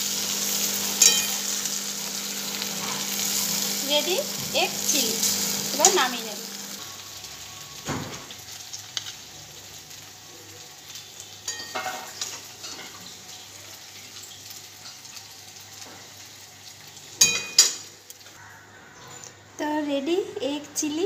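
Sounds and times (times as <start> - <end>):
soft sizzle: 0.0 - 18.4.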